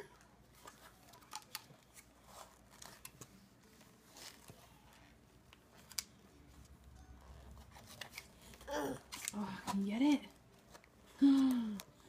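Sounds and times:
plastic shell clicks and crackles: 0:00.6 - 0:02.1.

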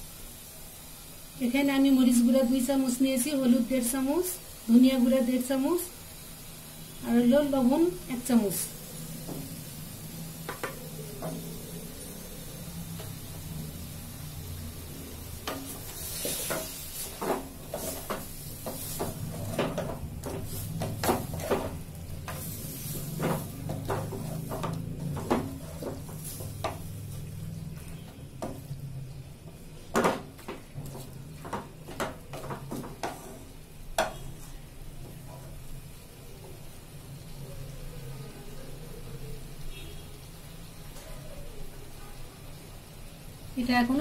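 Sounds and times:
frying sizzle in oil: 0:00.0 - 0:44.0
wooden spatula scraping a pot: 0:15.4 - 0:28.7, 0:30.0 - 0:35.6.

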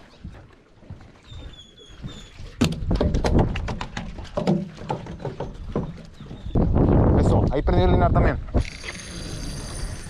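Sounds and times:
fish flopping on wooden boards: 0:02.5 - 0:06.5.

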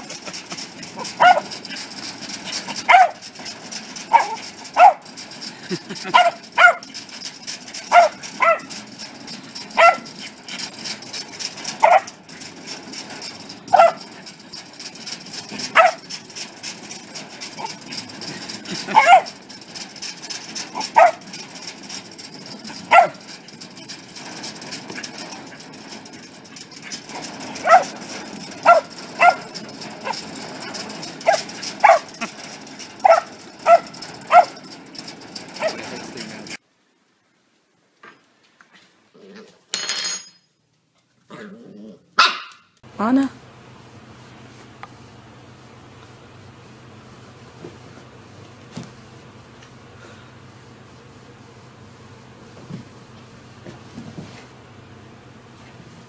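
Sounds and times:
dog barking in high yips: 0:01.0 - 0:01.5, 0:02.8 - 0:03.2, 0:04.1 - 0:05.1, 0:06.1 - 0:07.0, 0:07.9 - 0:08.8, 0:09.8 - 0:10.2, 0:11.8 - 0:12.2, 0:13.7 - 0:14.1, 0:15.7 - 0:16.1, 0:18.9 - 0:19.4, 0:20.8 - 0:21.3, 0:22.9 - 0:23.2, 0:27.6 - 0:28.0, 0:28.6 - 0:30.3, 0:31.2 - 0:32.2, 0:33.0 - 0:34.6, 0:42.2 - 0:42.7.

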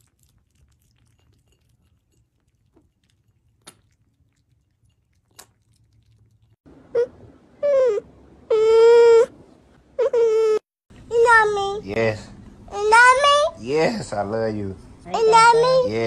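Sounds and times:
cats lapping milk: 0:00.0 - 0:06.6.

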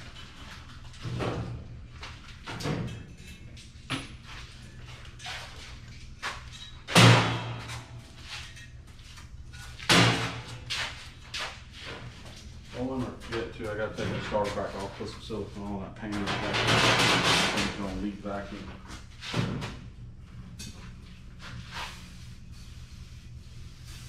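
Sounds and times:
steady low hum: 0:00.0 - 0:24.0
tools knocking and banging: 0:16.1 - 0:17.9.

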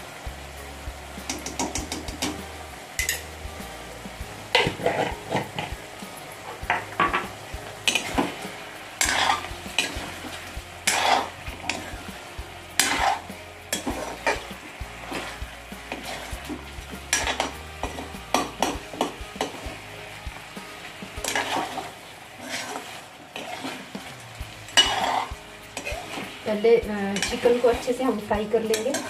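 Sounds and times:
chicken sizzling in oil: 0:00.0 - 0:29.0
ladle scraping a steel pan: 0:09.0 - 0:12.2, 0:21.2 - 0:26.4.

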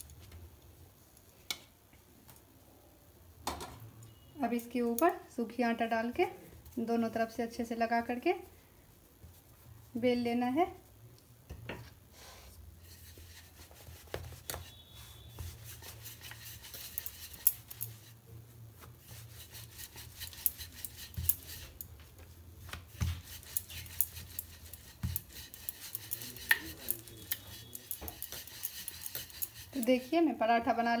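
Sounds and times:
rolling pin rubbing on dough: 0:12.2 - 0:31.0.

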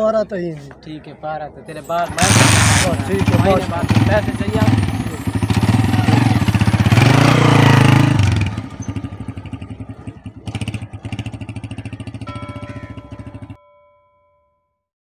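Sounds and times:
small motorcycle engine revving: 0:02.1 - 0:13.6.

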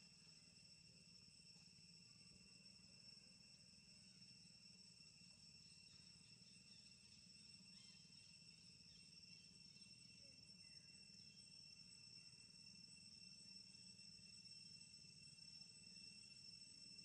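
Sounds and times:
high-pitched insect drone: 0:00.0 - 0:17.0
faint chirps: 0:05.6 - 0:11.6.

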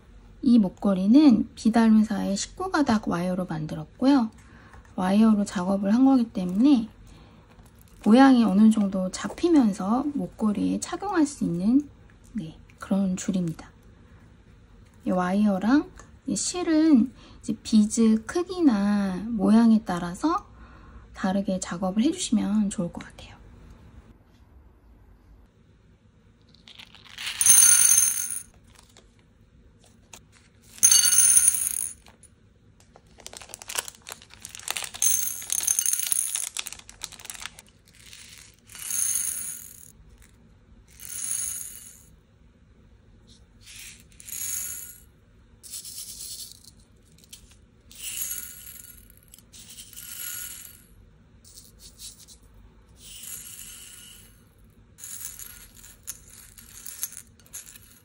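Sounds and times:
glass beads clinking into bowl: 0:26.7 - 0:28.6, 0:30.7 - 0:32.2, 0:33.3 - 0:39.9, 0:40.9 - 0:42.1, 0:43.8 - 0:50.9, 0:53.0 - 0:58.0
fingers stirring beads: 0:33.1 - 0:39.9.

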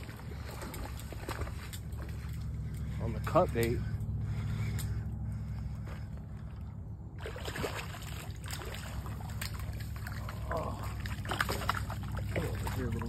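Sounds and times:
fish splashing in water: 0:00.0 - 0:03.0, 0:07.2 - 0:13.0
steady low hum: 0:00.0 - 0:13.0.

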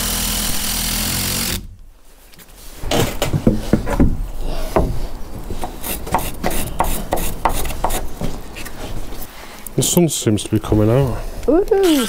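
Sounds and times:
wooden knocks and rubbing: 0:02.8 - 0:09.2.

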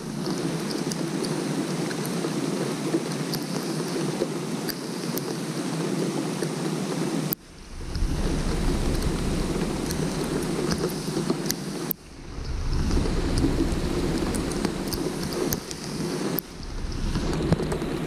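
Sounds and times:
rain falling on water: 0:00.0 - 0:18.0
low rumble: 0:07.4 - 0:18.0.

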